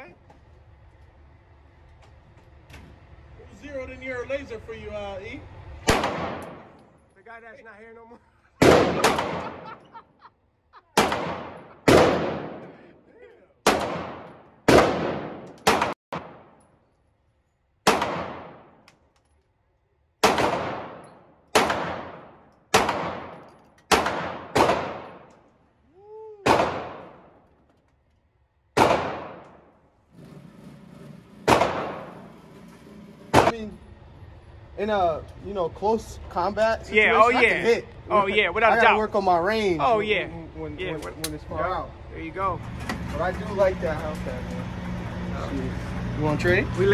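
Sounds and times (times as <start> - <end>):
pistol shots echoing indoors: 8.6 - 9.7, 17.8 - 18.8, 20.2 - 25.3, 28.8 - 29.7, 31.4 - 32.3.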